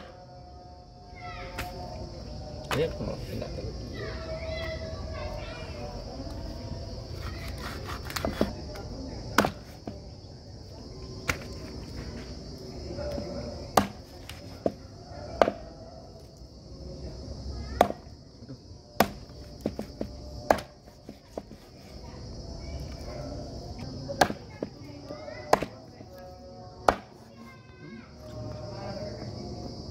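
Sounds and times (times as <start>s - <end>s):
high insect drone: 0.0s - 29.9s
knife chopping meat and bone: 7.2s - 8.6s, 9.4s - 9.8s, 13.8s - 14.8s, 19.0s - 21.7s.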